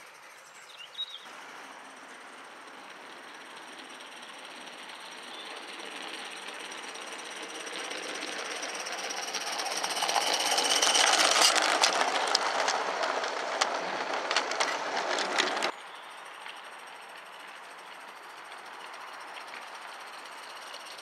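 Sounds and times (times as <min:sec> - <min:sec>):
model steam locomotive running: 0:00.0 - 0:21.0
wheels clicking over rail joints: 0:01.3 - 0:21.0.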